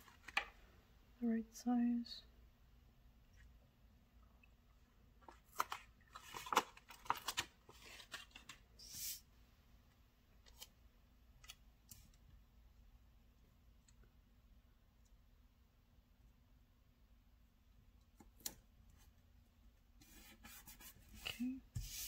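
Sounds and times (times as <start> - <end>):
paper pages crinkling: 5.2 - 8.6
paper rustle: 5.3 - 9.2.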